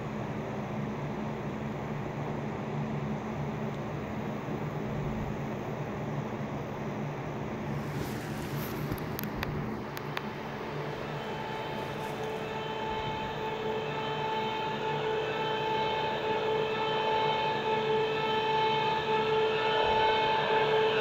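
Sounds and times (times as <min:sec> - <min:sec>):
ambient drone with two tones: 0:07.6 - 0:21.0
soft hiss: 0:07.7 - 0:12.7.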